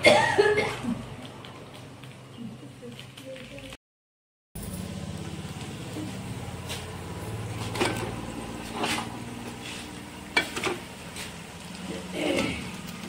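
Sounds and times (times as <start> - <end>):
low motor hum: 4.6 - 13.0
chicken sizzling in a pan: 4.7 - 13.0.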